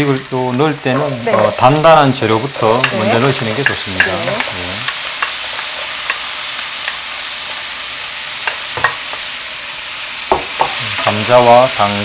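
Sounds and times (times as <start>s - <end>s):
vegetables sizzling in oil: 0.0s - 12.0s
knocks against pan: 10.3s - 10.8s.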